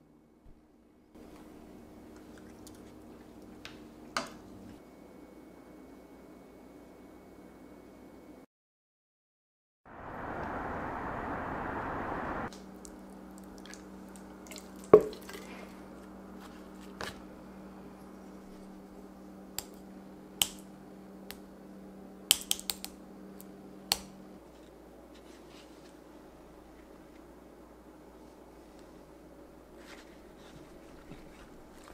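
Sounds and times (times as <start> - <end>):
low steady hum: 9.9 - 31.9.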